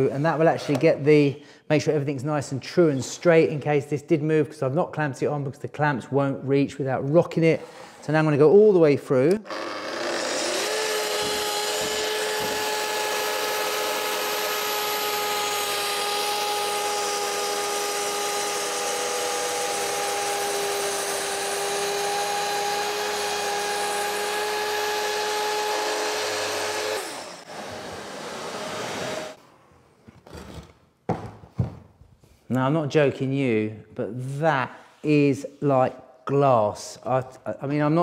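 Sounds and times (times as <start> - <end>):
circular saw cutting wood: 9.4 - 29.4.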